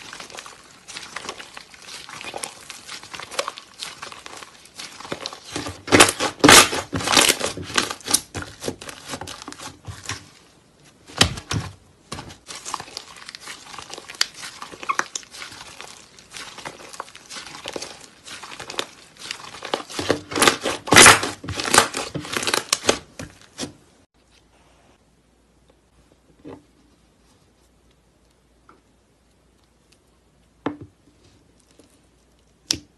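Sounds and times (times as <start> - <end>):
slime squishing and crackling: 0.0 - 23.8.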